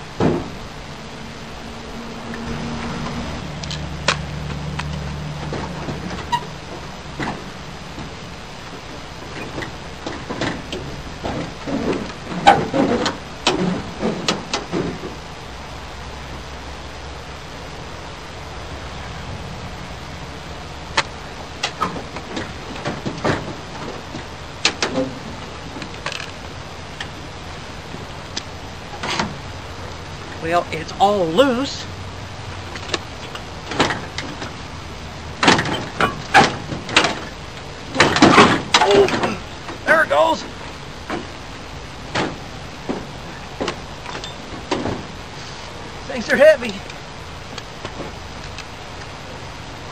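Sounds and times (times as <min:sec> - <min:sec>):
metal truck door clanking: 0:05.3 - 0:15.2, 0:20.9 - 0:26.2, 0:28.9 - 0:29.5, 0:32.8 - 0:34.7, 0:35.3 - 0:45.3
metal squeak: 0:06.1 - 0:06.7, 0:44.1 - 0:44.5.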